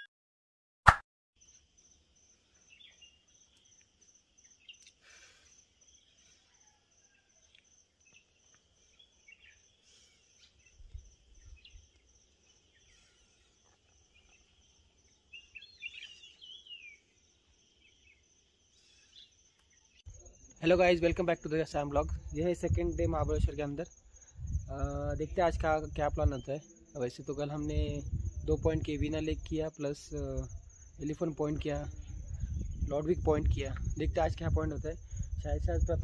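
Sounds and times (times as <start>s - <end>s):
bird chirps: 1.4s - 20.7s
pulsing high insect trill: 1.4s - 36.0s.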